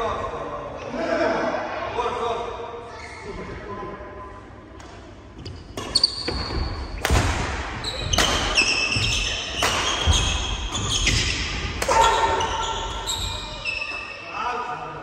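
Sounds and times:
rackets smacking shuttlecock: 0:07.0 - 0:12.4
shoes squeaking on wooden floor: 0:07.8 - 0:14.1.

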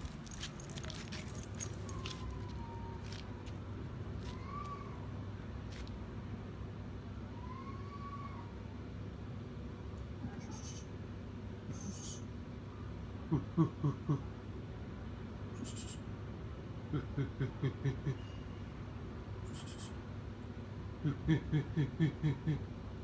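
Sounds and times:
owl hooting: 0:11.7 - 0:12.3, 0:15.6 - 0:16.1, 0:19.4 - 0:20.0.

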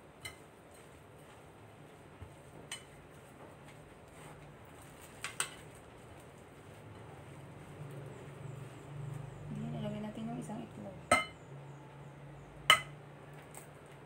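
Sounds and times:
fork clinking against ceramic bowl: 0:12.7 - 0:13.0.

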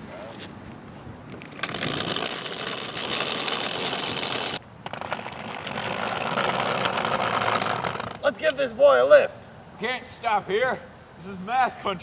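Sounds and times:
wagon wheels rattling on pavement: 0:01.4 - 0:08.3.

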